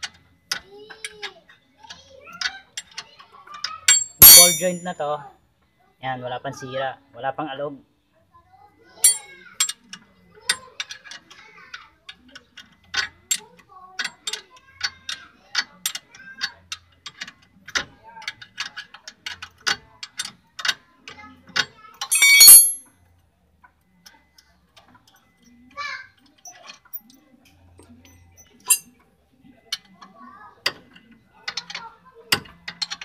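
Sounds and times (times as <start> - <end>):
wrench clicking on metal: 3.9 - 4.9, 9.0 - 9.8, 22.1 - 22.8
metal rattle: 3.9 - 5.0, 9.0 - 9.2, 22.1 - 22.8.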